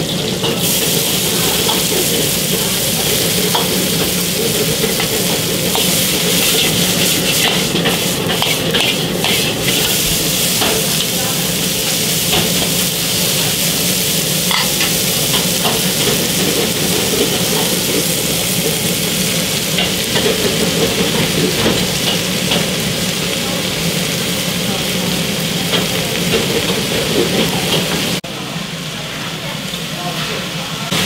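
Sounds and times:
bean sprouts sizzling in a wok: 0:00.0 - 0:31.0.

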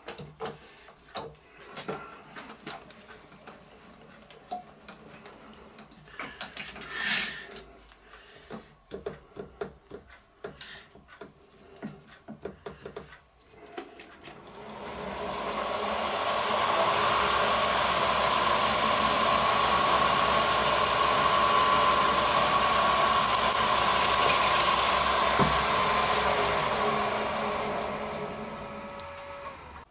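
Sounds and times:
milling machine spindle whine: 0:14.2 - 0:29.8
drill cutting metal hiss: 0:14.4 - 0:29.8.

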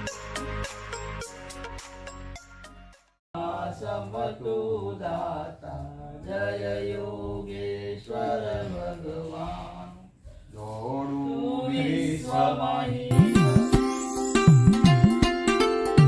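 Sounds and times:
beat-driven music: 0:13.1 - 0:16.0.

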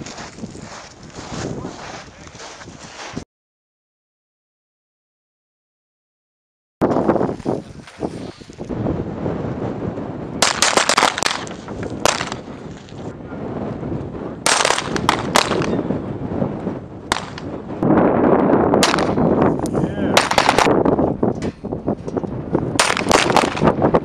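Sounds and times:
pistol shots: 0:10.4 - 0:12.4, 0:14.5 - 0:15.8, 0:17.1 - 0:17.5, 0:18.8 - 0:19.2, 0:20.2 - 0:20.7, 0:22.8 - 0:23.7.

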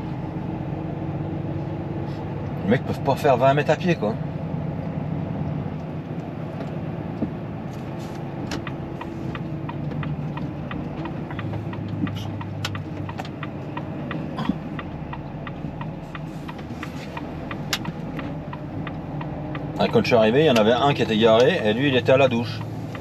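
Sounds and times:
truck diesel engine running: 0:00.0 - 0:23.0
light regular ticking: 0:08.2 - 0:23.0.

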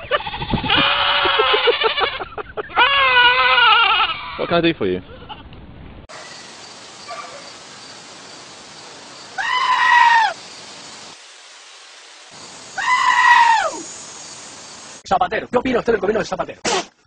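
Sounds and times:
goat screaming: 0:00.0 - 0:04.5, 0:09.4 - 0:10.4, 0:12.8 - 0:13.8.

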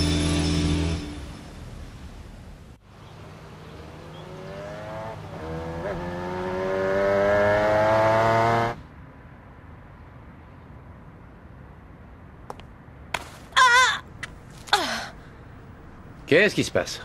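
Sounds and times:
motorcycle engine approaching: 0:03.3 - 0:08.8.

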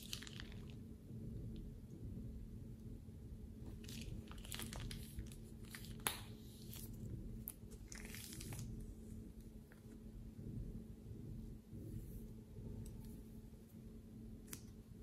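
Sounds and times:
plastic bag crinkling: 0:03.8 - 0:06.1.

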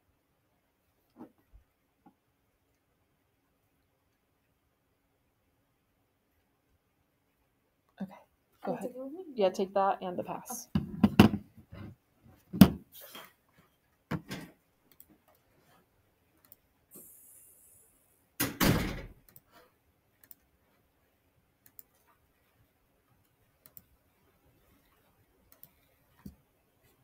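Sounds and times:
door banging shut: 0:18.4 - 0:19.2.

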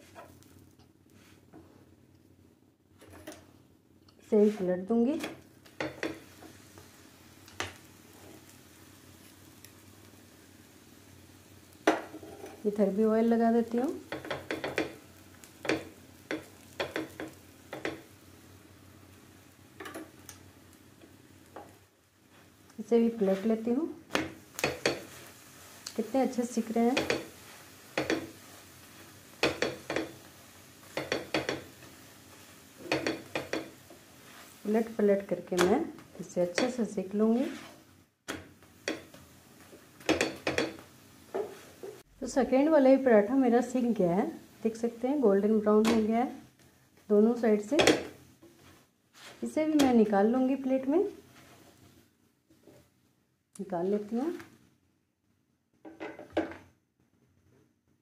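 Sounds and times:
flatbread sizzling in oil: 0:00.0 - 0:01.5, 0:05.4 - 0:53.0
spatula knocking on pan: 0:05.2 - 0:06.2, 0:14.1 - 0:15.0, 0:15.6 - 0:18.1, 0:26.9 - 0:27.3, 0:27.9 - 0:28.3, 0:29.4 - 0:30.2, 0:30.9 - 0:31.7, 0:32.8 - 0:33.8, 0:40.0 - 0:40.8.

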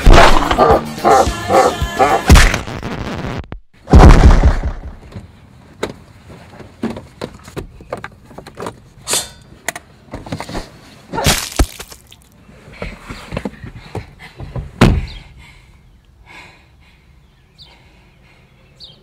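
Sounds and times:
loud hit: 0:00.0 - 0:00.7, 0:03.9 - 0:05.0
knocks and rustles inside car: 0:12.8 - 0:15.2.

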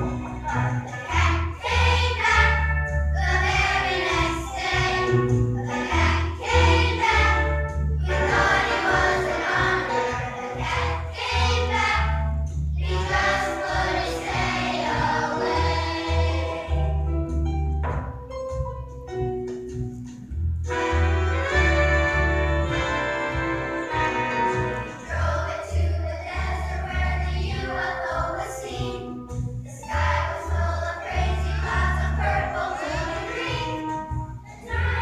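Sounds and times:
choir singing in parts: 0:00.0 - 0:12.2, 0:12.8 - 0:17.1, 0:21.4 - 0:29.1, 0:29.7 - 0:35.0
low bass line: 0:00.0 - 0:27.7
instrumental accompaniment: 0:00.0 - 0:35.0.

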